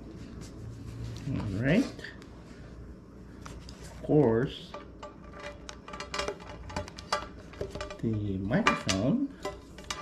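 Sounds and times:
person speaking: 1.2s - 2.4s, 3.9s - 5.0s, 7.8s - 9.4s.

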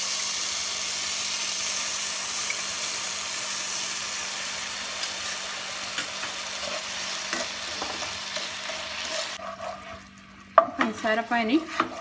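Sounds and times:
sugar syrup sizzling in a pan: 0.0s - 12.0s.

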